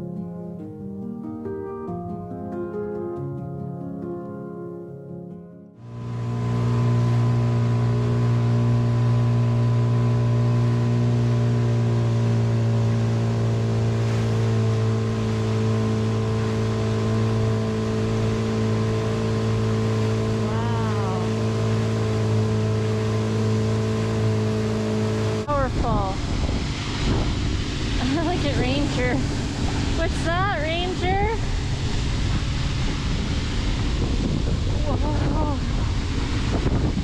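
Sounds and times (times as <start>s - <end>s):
boat engine droning: 5.8s - 37.0s
waterfall rushing: 13.6s - 36.8s.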